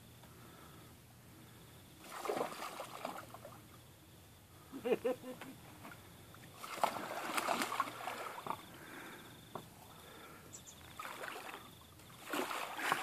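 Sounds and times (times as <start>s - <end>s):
water lapping: 2.0s - 3.8s, 6.0s - 9.4s, 10.0s - 13.0s
water splashing and sloshing: 2.0s - 3.9s, 5.7s - 9.2s, 10.8s - 13.0s.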